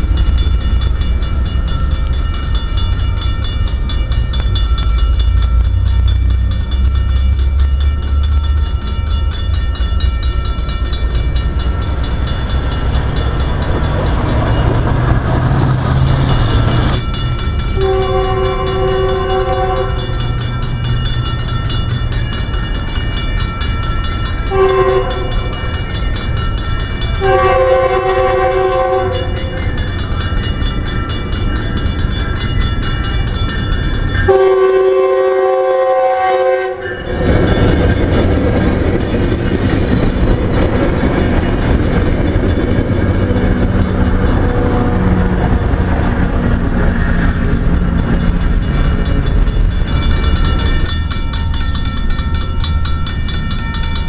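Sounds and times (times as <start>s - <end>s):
crossing warning bell ringing: 0.0s - 54.0s
train rumbling and clattering: 0.0s - 54.0s
train horn blasts: 17.8s - 20.3s, 24.5s - 25.5s, 27.2s - 29.7s, 34.3s - 37.1s.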